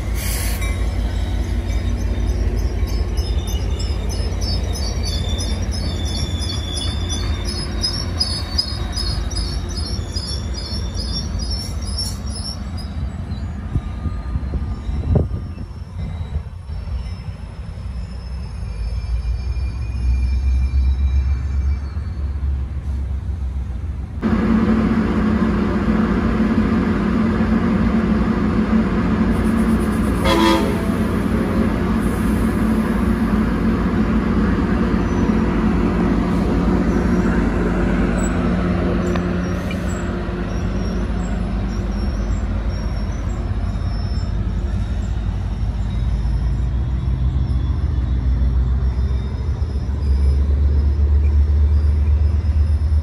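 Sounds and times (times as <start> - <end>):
diesel train engine rumble: 0.0 - 53.0
rail noise: 0.0 - 53.0
train horn toot: 30.1 - 31.2.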